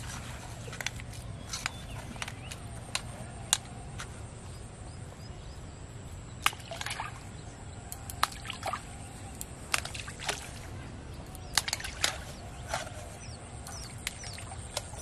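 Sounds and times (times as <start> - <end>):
small splashes in water: 6.4 - 7.3, 9.7 - 10.7, 11.6 - 12.9.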